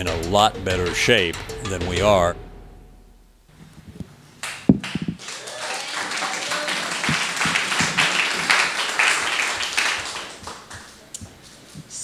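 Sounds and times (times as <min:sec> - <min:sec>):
audience applauding: 0:04.4 - 0:11.1.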